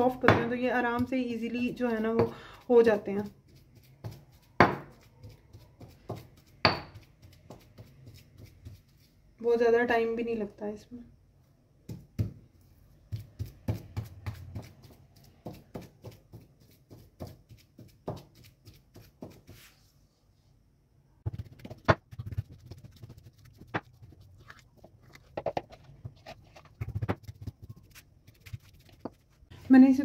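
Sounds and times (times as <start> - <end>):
pestle knocking against bowl: 6.0 - 7.8.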